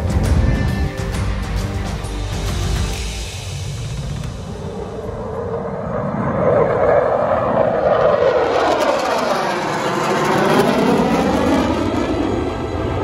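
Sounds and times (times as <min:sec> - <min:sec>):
military jets flying overhead: 0:03.0 - 0:13.0.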